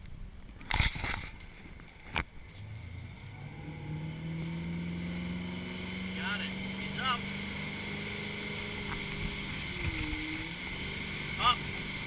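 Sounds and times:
boat engine running: 2.4s - 12.0s.

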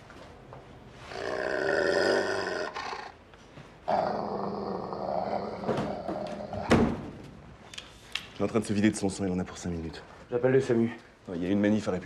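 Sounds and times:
dog growling and snarling: 3.9s - 6.7s.

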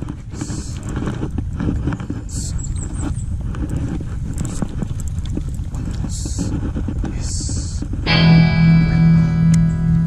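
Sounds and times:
wind rumbling on microphone: 0.0s - 10.0s
guitar music: 8.1s - 10.0s.

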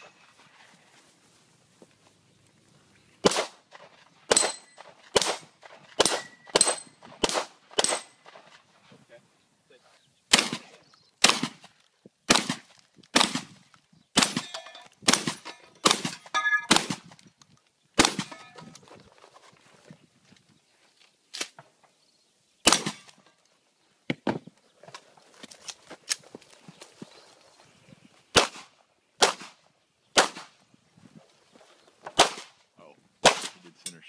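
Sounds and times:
gunshots: 3.2s - 3.7s, 4.3s - 8.5s, 10.3s - 11.7s, 12.3s - 13.6s, 14.2s - 17.1s, 18.0s - 18.4s, 22.6s - 23.2s, 28.3s - 29.6s, 30.2s - 30.6s, 32.2s - 32.6s, 33.2s - 33.7s
steel plates ringing: 16.4s - 16.7s.

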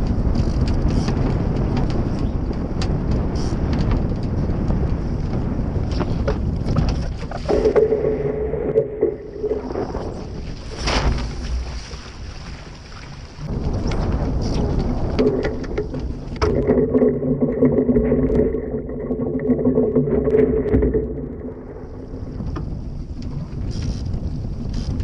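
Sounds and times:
wind rushing over microphone: 0.0s - 12.7s, 13.3s - 25.0s
water noise: 0.0s - 25.0s
steady low hum: 7.3s - 11.8s, 13.4s - 23.6s.

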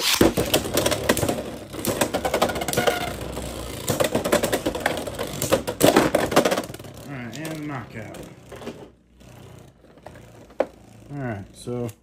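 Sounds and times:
plastic spinning tops clattering: 0.0s - 12.0s
steady whir: 6.7s - 12.0s.

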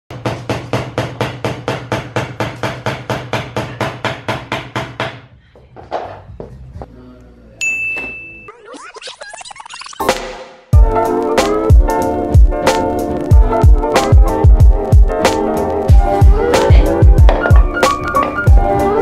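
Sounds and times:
background music with beat and bass: 9.8s - 19.0s.

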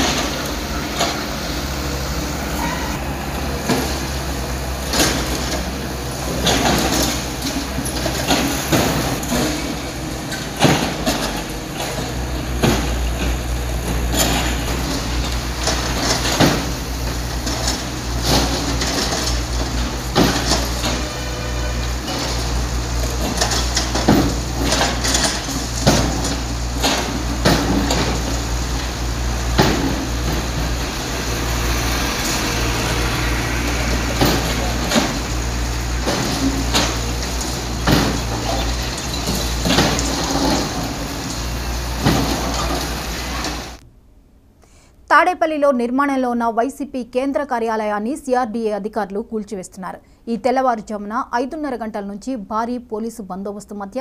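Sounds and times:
excavator engine running: 0.0s - 43.9s
concrete knocking and crashing: 3.4s - 21.2s, 22.0s - 43.8s.

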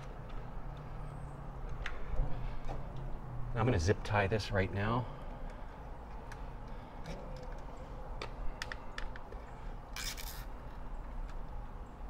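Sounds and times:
zip tie ratcheting: 9.9s - 10.5s.

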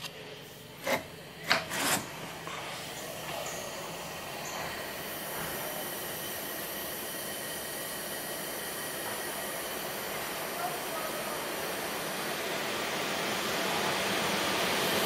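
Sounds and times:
train wheels on track: 0.8s - 15.0s.

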